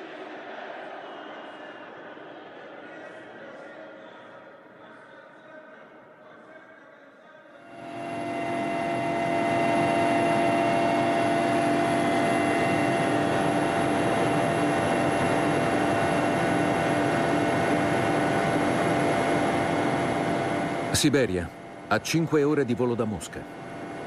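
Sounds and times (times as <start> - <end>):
aircraft engine and airflow drone: 7.7 - 24.0
high steady whines: 7.7 - 24.0.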